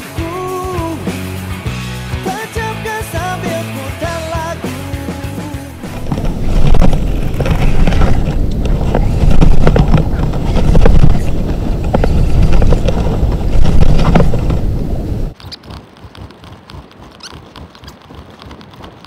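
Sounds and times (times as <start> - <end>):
small scrapes and knocks: 5.8 - 14.7
wind buffeting microphone: 5.8 - 15.4
fabric rubbing on microphone: 5.8 - 19.0.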